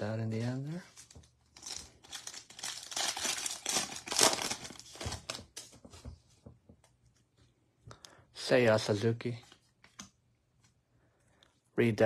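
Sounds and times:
wrapper crinkling and tearing: 0.9s - 5.7s.

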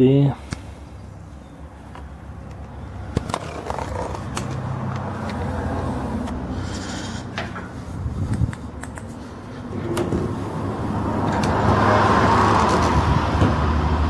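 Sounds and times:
sharp clicks: 8.3s - 9.2s.

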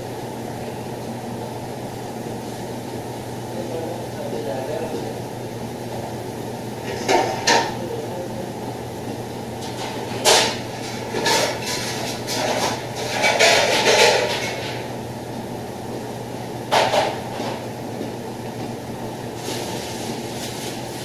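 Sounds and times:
pots and utensils clattering: 6.8s - 7.8s, 9.6s - 14.9s, 16.7s - 17.6s.

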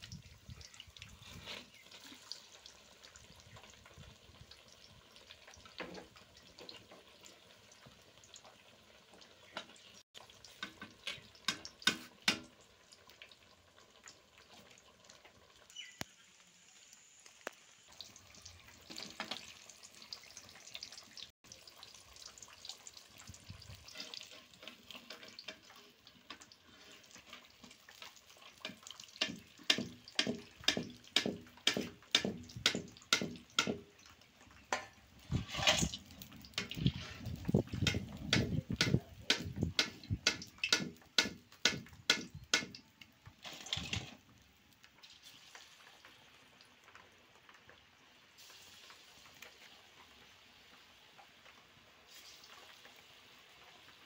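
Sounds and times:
oil sizzling: 0.0s - 54.0s
metal skimmer scraping wok: 34.7s - 38.1s, 43.4s - 44.2s.

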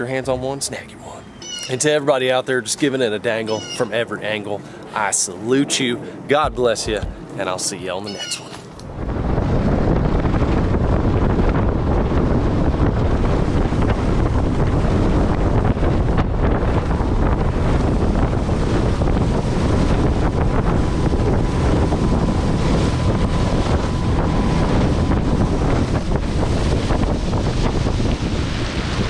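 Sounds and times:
wind buffeting microphone: 0.0s - 29.0s
water rushing past hull: 3.1s - 8.0s, 8.7s - 29.0s
outboard motor running: 6.4s - 7.4s, 8.8s - 29.0s.

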